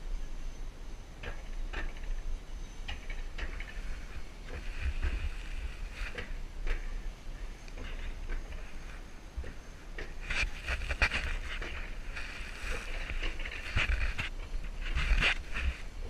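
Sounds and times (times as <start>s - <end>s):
coaster wheels rumbling on rail: 0.0s - 16.0s
sharp clacks and rattles: 1.2s - 15.8s.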